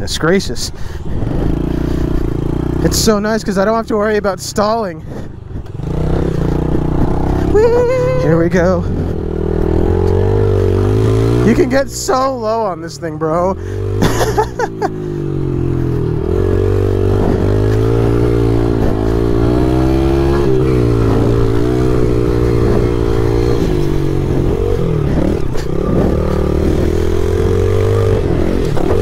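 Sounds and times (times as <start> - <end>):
small motorcycle engine revving: 5.6 - 12.5, 13.2 - 29.0.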